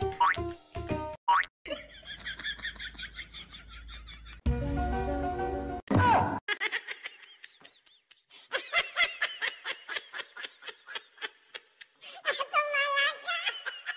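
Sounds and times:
high-pitched giggling laughter: 0:06.5 - 0:13.9.

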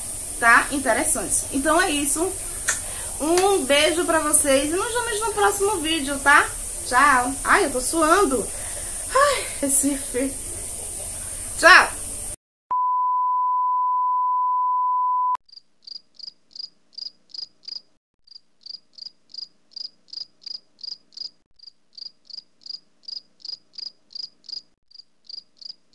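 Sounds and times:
cricket chirping: 0:15.5 - 0:25.9.

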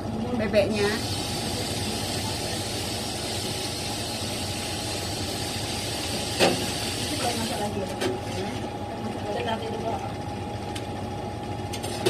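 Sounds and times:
exhaust fan running: 0:00.0 - 0:12.0
gas burner flame rushing: 0:00.8 - 0:07.8.

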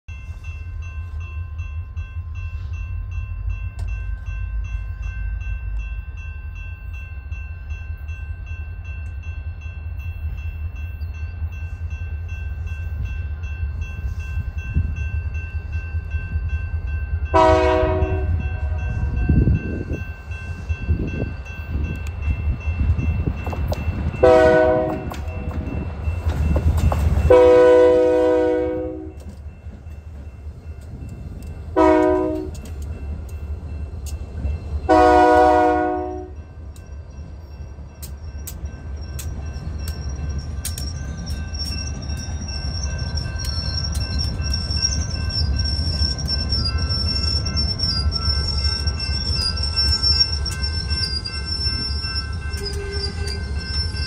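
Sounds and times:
diesel locomotive engine rumble: 0:00.1 - 0:54.0
train air horn blasts: 0:17.3 - 0:19.0, 0:24.2 - 0:25.1, 0:27.3 - 0:29.2, 0:31.8 - 0:32.6, 0:34.9 - 0:36.4, 0:52.6 - 0:53.4.

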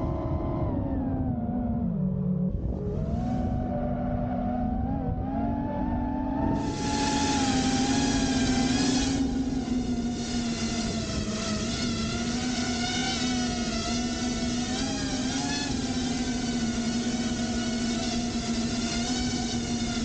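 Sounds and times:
drone propellers whining: 0:00.0 - 0:20.0.

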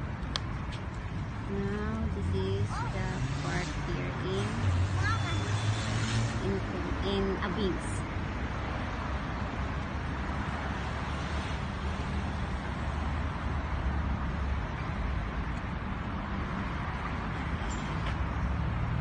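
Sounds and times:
low rumble of road traffic: 0:00.0 - 0:19.0.

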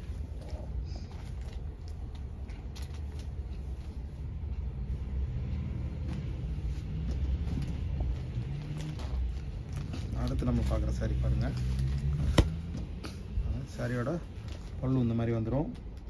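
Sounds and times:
fabric rustling: 0:05.9 - 0:15.8.

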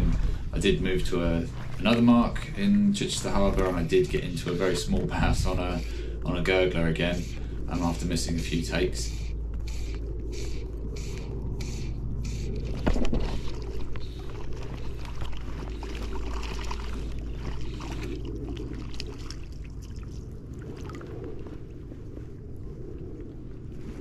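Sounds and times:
water sloshing around legs: 0:00.0 - 0:08.4, 0:09.4 - 0:22.2
steady low rumble: 0:00.0 - 0:24.0
fishing line rasps: 0:09.2 - 0:13.8.

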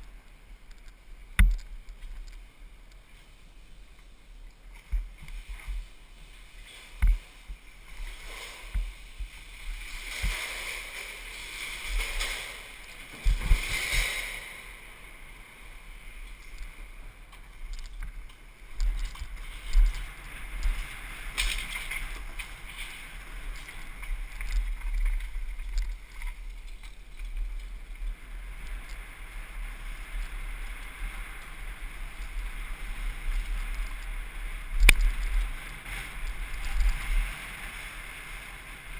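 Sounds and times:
bike rattling: 0:04.8 - 0:38.9.

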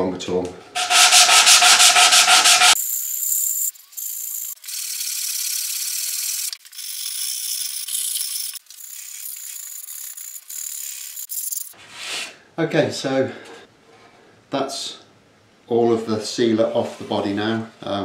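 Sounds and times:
sandpaper rubbing on wood: 0:00.8 - 0:02.8.

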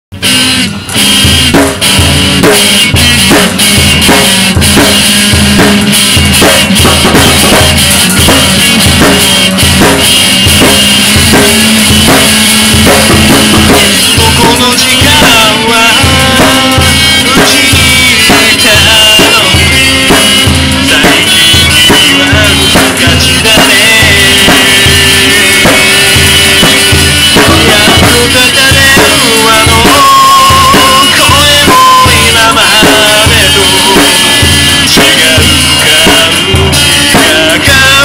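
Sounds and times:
drum kit beat: 0:00.1 - 0:38.0
pop song: 0:10.6 - 0:38.0.

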